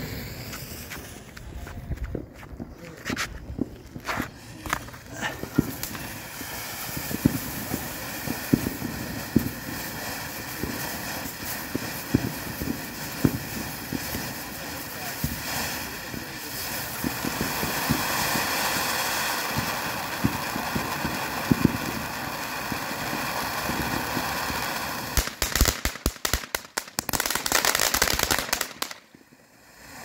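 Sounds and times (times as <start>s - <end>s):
firework pops: 0.0s - 9.6s, 16.9s - 22.2s, 23.6s - 29.4s
firework rapid crackling: 0.0s - 30.0s
firework spraying sparks hissing: 0.0s - 30.0s.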